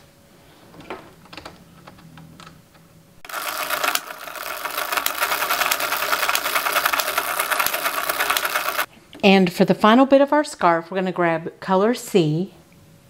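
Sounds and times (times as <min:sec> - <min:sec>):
knitting machine clattering: 0:03.2 - 0:08.9.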